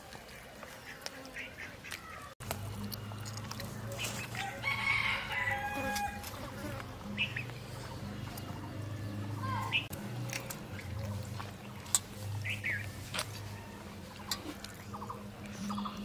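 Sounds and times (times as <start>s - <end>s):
rooster crowing: 4.4s - 6.3s.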